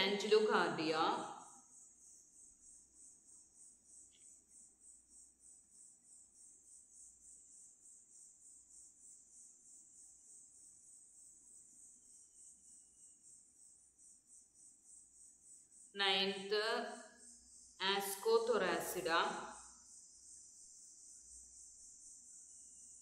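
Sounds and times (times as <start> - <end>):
faint insect chirping: 0.0 - 23.0.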